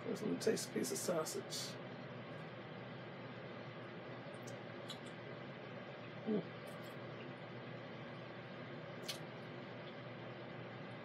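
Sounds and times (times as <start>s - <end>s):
steady hiss: 0.0s - 5.8s.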